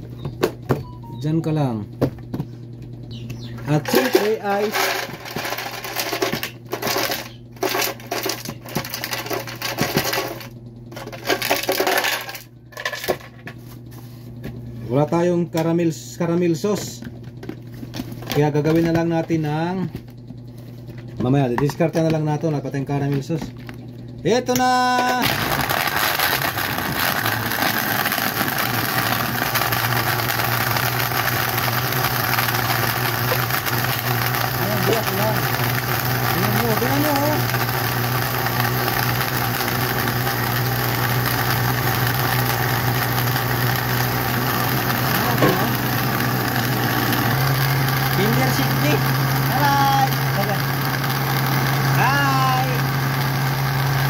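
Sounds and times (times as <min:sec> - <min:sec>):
blender motor running: 0:03.1 - 0:13.2, 0:24.5 - 0:54.0
ice cubes clinking into blender jar: 0:03.7 - 0:13.3.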